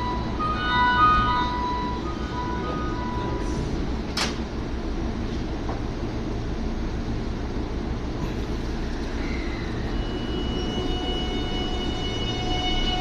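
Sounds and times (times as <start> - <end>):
electric train low hum: 0.0 - 13.0
traction motor high whine: 8.8 - 13.0.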